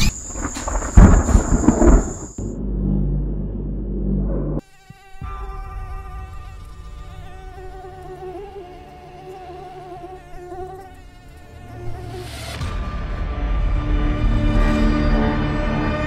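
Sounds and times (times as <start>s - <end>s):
low rumble: 0.7s - 4.6s
mosquito whining: 4.6s - 12.7s.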